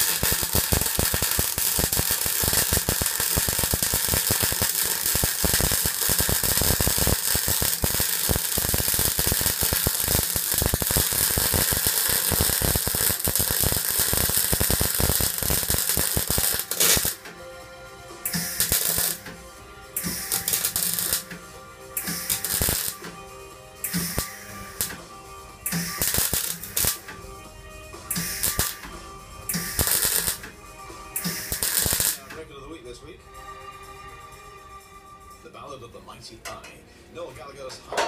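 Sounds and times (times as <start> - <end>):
welding arc crackling: 0.0 - 17.3, 18.3 - 19.3, 20.0 - 21.4, 22.0 - 23.1, 23.8 - 25.0, 25.7 - 27.2, 28.1 - 28.9, 29.5 - 30.5, 31.2 - 32.4.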